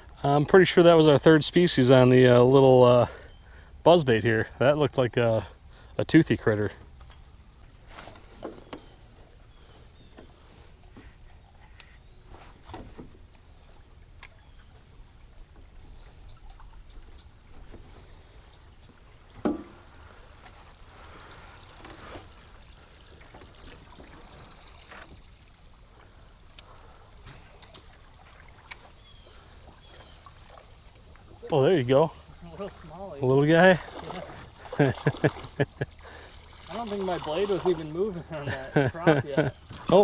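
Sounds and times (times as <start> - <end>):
crickets chirping: 0.0 - 40.0
knocks on aluminium boat: 19.4 - 19.8.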